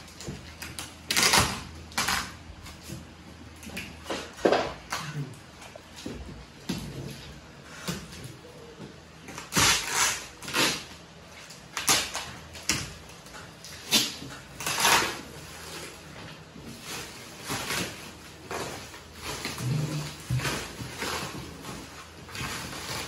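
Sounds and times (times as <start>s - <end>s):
plastic wrap crinkling and tearing: 0.0s - 3.2s, 9.2s - 23.0s.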